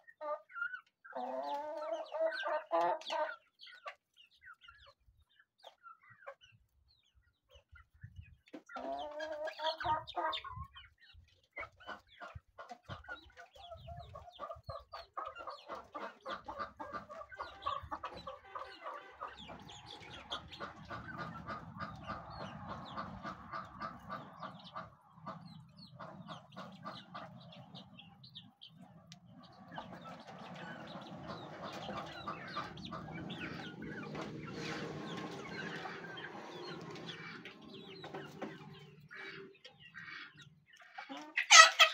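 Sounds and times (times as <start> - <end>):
chickens clucking softly: 0.0 - 41.9
chickens pecking in metal basin: 8.3 - 25.1, 29.6 - 41.9.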